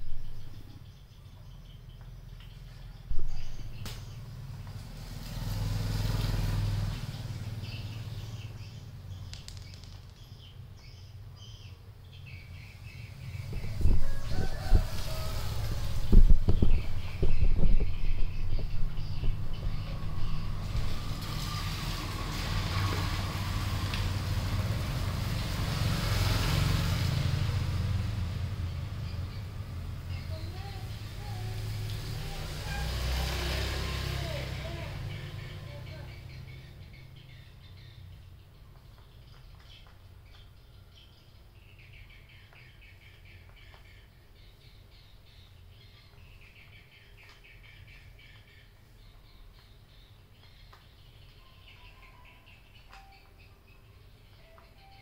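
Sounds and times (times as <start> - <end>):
vehicle engine humming: 0.0 - 55.0
faint high chirps: 34.2 - 55.0.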